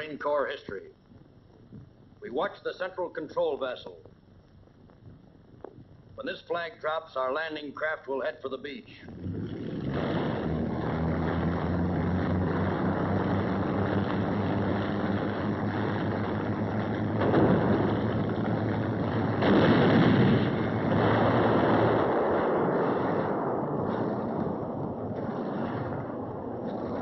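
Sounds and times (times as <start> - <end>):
wind: 9.5 - 27.0.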